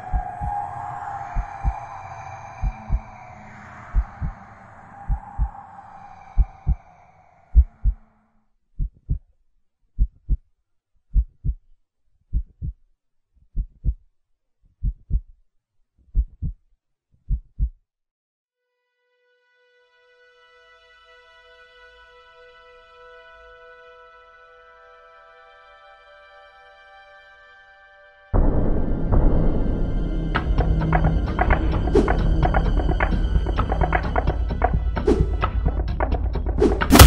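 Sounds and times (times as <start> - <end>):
low drone: 0.0 - 8.3, 28.4 - 35.3
heartbeat low thuds: 2.6 - 3.1, 3.9 - 4.4, 7.6 - 8.0, 11.1 - 11.6, 12.3 - 12.8, 13.6 - 14.0, 14.8 - 15.3, 16.1 - 16.6.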